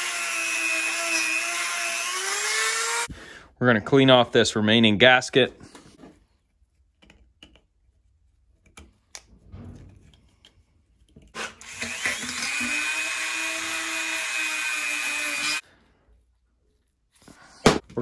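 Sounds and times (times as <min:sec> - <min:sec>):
electric rotary tool running: 0:00.0 - 0:03.1, 0:11.4 - 0:15.6.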